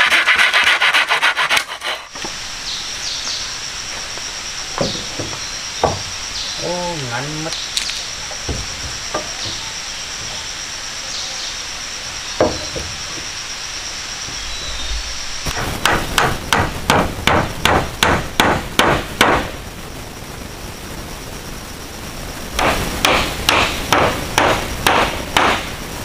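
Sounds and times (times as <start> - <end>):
hammer blows on timber: 12.4 - 13.3, 22.6 - 25.7.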